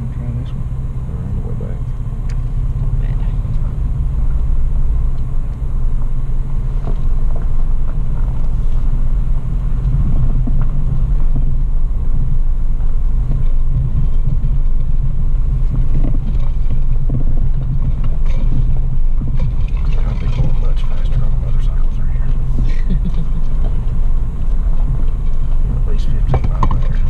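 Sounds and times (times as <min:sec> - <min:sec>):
engine and drivetrain rumble: 0:00.0 - 0:27.0
small knocks and rattles: 0:15.6 - 0:21.8.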